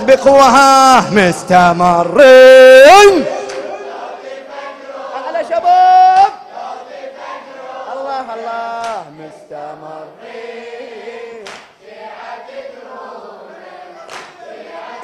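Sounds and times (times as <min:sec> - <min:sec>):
men chanting: 0:00.0 - 0:15.0
man shouting a call: 0:02.1 - 0:03.9.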